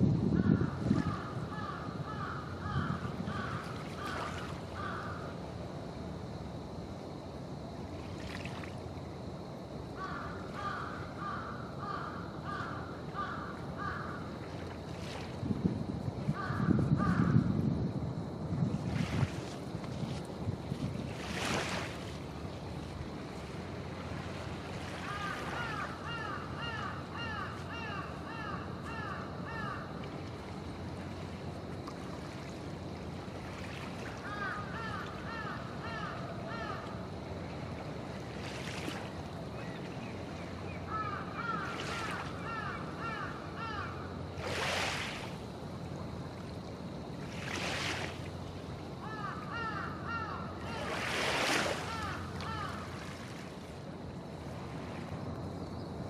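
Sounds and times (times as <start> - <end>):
waves lapping: 3.2 - 16.3, 18.5 - 56.0
bird calling: 25.0 - 29.9, 34.2 - 37.0, 39.6 - 44.0, 49.0 - 51.0, 51.7 - 53.0.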